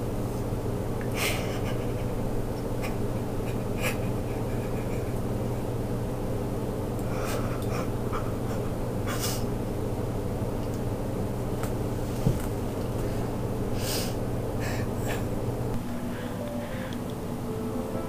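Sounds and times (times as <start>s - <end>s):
steady low hum: 0.0s - 18.0s
short breaths: 16.0s - 17.1s.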